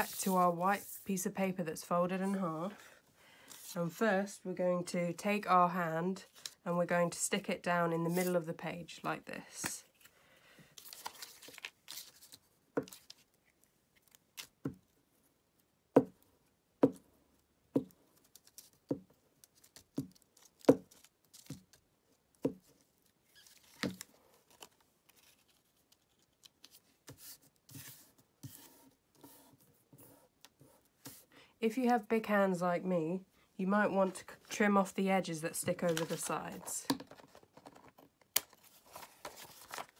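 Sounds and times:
paper rustling: 0.0 - 1.0, 10.8 - 13.4, 23.3 - 29.4, 35.7 - 39.9.

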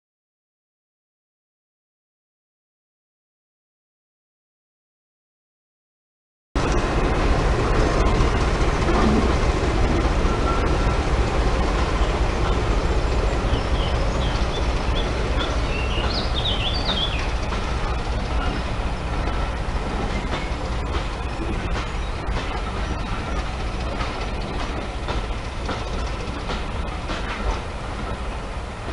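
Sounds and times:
diesel locomotive engine running: 6.6 - 28.9
train coaches on rails: 6.6 - 28.9
birds chirping: 10.3 - 24.6.

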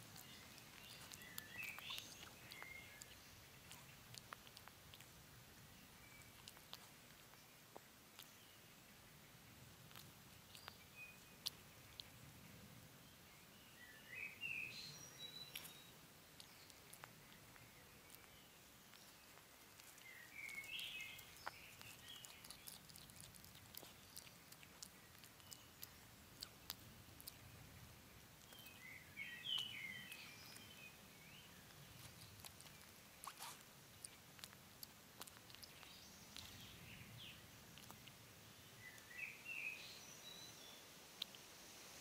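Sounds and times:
faint bird chirping: 0.0 - 42.0
hedgehog chewing and snuffling: 0.0 - 42.0.

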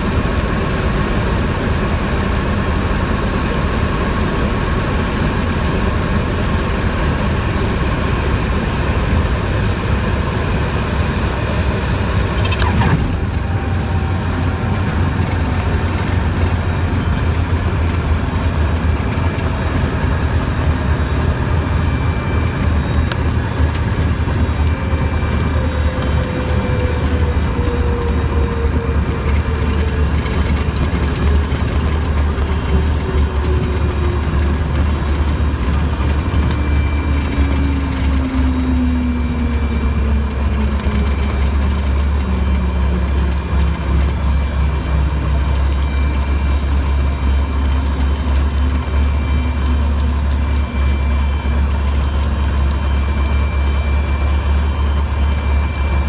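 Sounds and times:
aircraft engine droning: 0.0 - 56.0.

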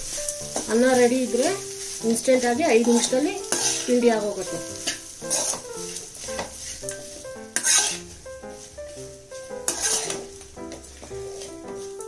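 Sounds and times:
soft background music: 0.0 - 12.0
spoon scraping rice in metal pan: 2.8 - 4.0, 4.8 - 8.7, 9.4 - 11.9.

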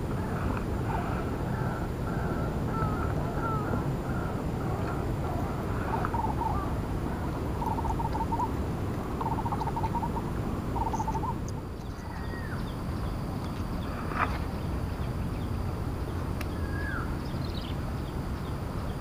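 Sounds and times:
low background noise: 0.0 - 19.0
animal trilling calls: 9.2 - 12.6.

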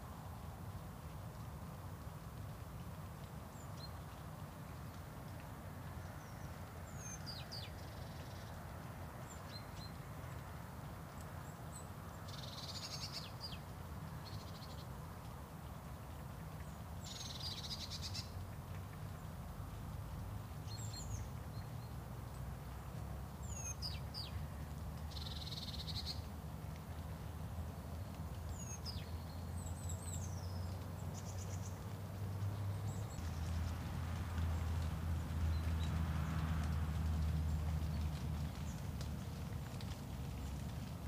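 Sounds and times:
low background rumble: 0.0 - 41.0.

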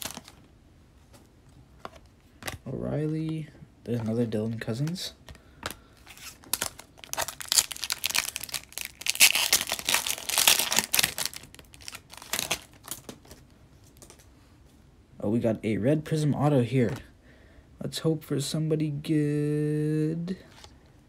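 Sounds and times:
foil wrapper tearing and crinkling: 6.1 - 13.4.

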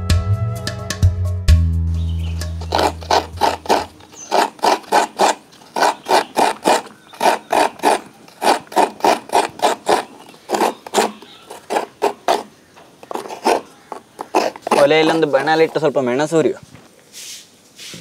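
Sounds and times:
coconut rasping on scraper blade: 2.4 - 16.0.

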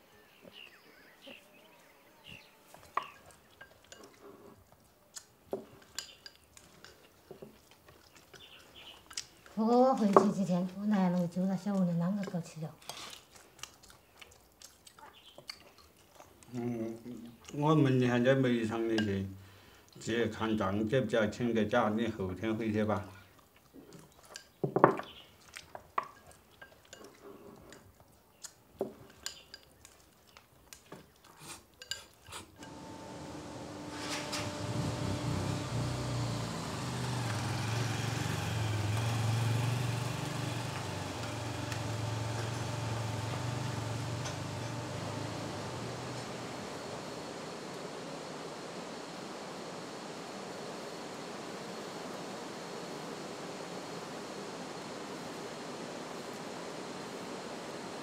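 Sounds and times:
soft eating sounds: 0.0 - 48.0
chopsticks clinking against bowls: 3.0 - 4.4, 5.1 - 10.4, 18.9 - 19.2, 25.7 - 27.8, 28.4 - 32.8
chopsticks clicking on bowls: 5.1 - 13.3, 28.4 - 31.2.

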